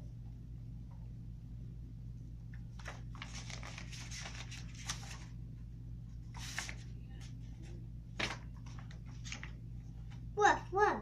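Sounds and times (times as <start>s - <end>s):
low steady hum: 0.0s - 11.0s
paper pages rustling: 2.6s - 5.4s, 6.2s - 10.3s
sharp page turn: 2.8s - 5.2s.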